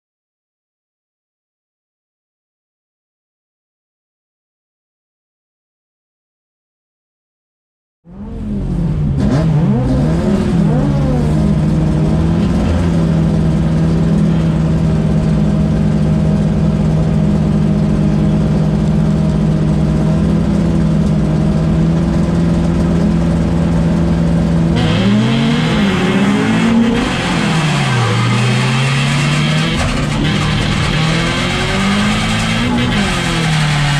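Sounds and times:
race car engine revving: 8.1s - 33.9s.

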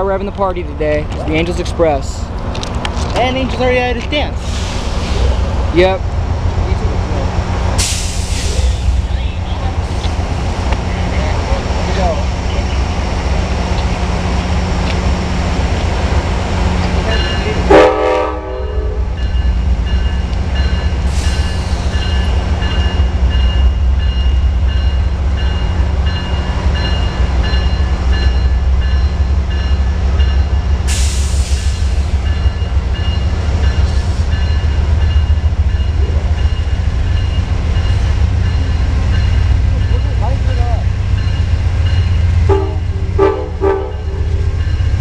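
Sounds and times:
diesel locomotive engine drone: 0.0s - 45.0s
bell ringing: 17.1s - 17.6s
train horn blast: 17.6s - 19.2s, 42.4s - 44.2s.

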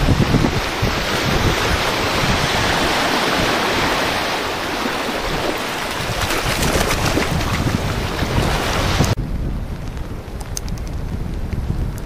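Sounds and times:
wind buffeting microphone: 0.0s - 12.0s
small waves breaking: 0.5s - 9.1s.

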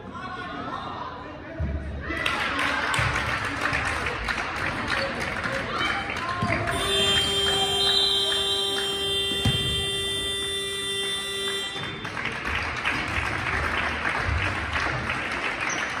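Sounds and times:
voices in a hall: 0.0s - 16.0s
people clapping: 2.0s - 16.0s
scoreboard buzzer tone: 6.7s - 12.2s.

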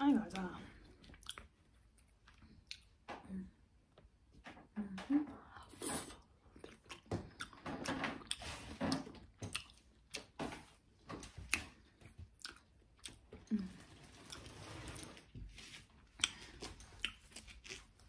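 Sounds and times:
person chewing noodles: 0.4s - 3.0s, 6.1s - 10.4s, 11.4s - 18.0s.

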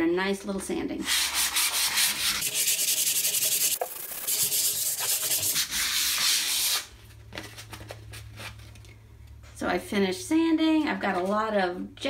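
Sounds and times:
sandpaper scratching on board: 1.1s - 6.9s.

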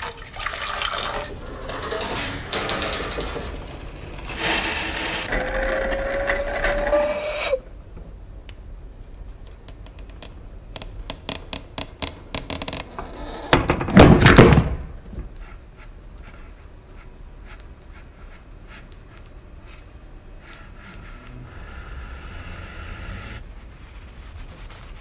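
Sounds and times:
liquid pouring into vessel: 0.0s - 1.4s
rough scraping noise: 1.2s - 7.6s.

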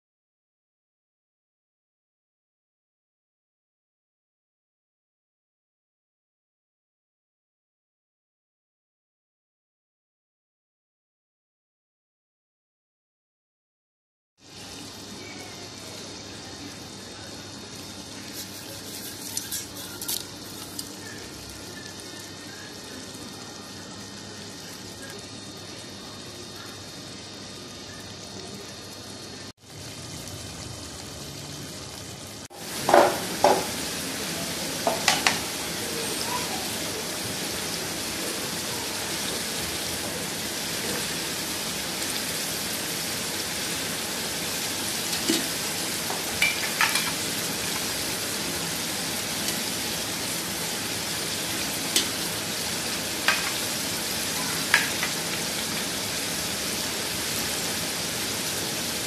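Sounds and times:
chicken frying in oil: 14.4s - 59.0s.

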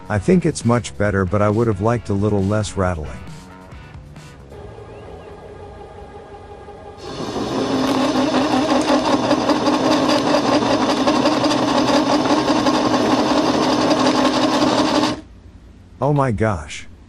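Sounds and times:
lathe spindle drive running: 4.6s - 15.3s
cutting tool rattling: 7.1s - 15.2s.

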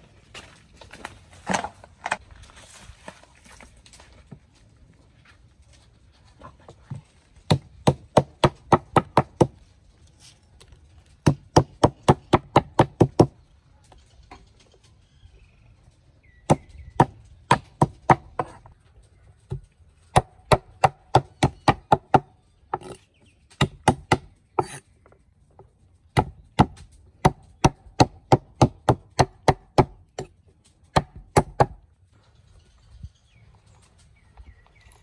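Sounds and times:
knife scraping board: 24.6s - 24.8s.

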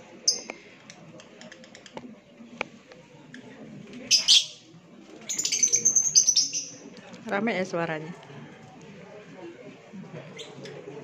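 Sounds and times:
lovebirds chirping: 5.3s - 6.9s.

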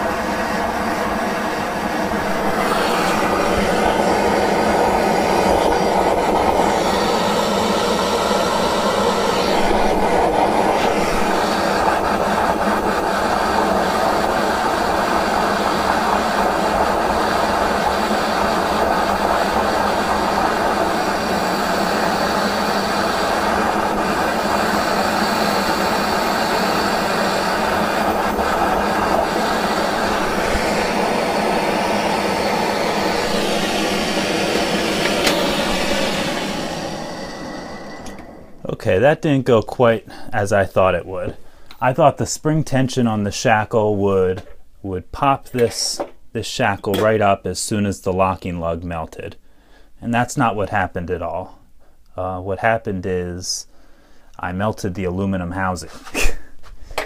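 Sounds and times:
gas torch hissing: 0.0s - 38.9s.

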